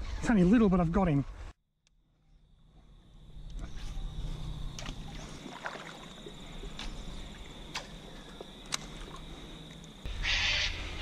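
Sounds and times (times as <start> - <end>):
water splashing: 4.3 - 10.0.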